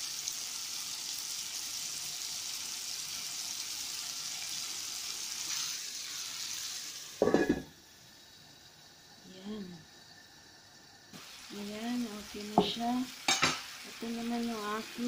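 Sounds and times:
chicken sizzling in oil: 0:00.0 - 0:15.0
metal lid clanking on pan: 0:07.2 - 0:07.7, 0:13.3 - 0:13.7.

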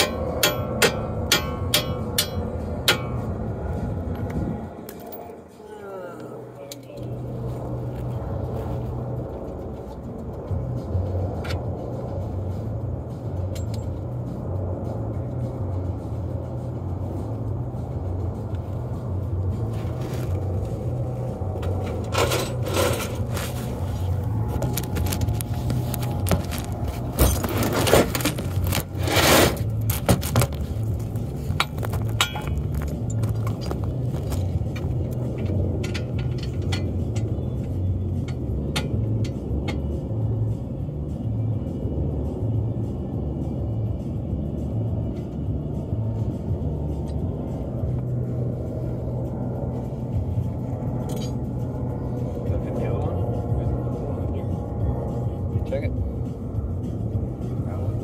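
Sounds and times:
car engine and road noise: 0:00.0 - 0:58.0
vehicle rumble: 0:00.0 - 0:58.0
scrapes and clinks: 0:21.6 - 0:34.8, 0:51.0 - 0:51.5.

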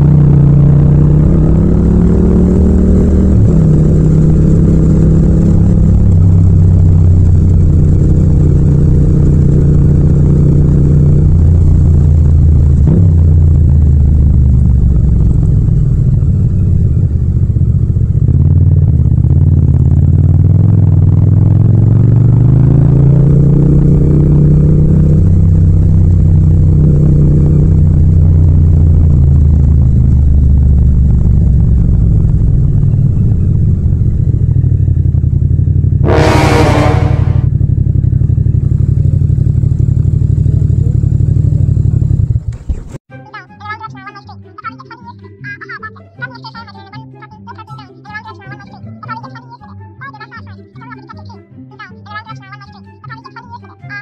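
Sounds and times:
motorcycle engine riding: 0:00.0 - 0:43.1
brief shrill sound: 0:36.1 - 0:37.5.

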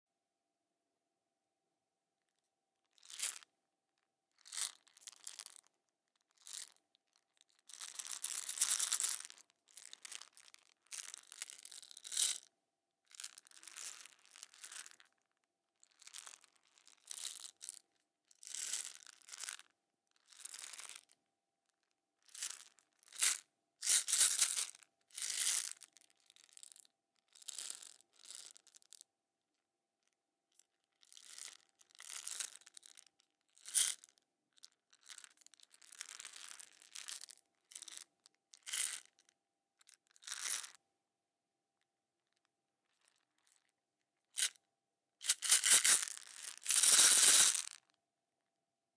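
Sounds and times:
marbles rattling in plastic container: 0:45.2 - 0:47.8.

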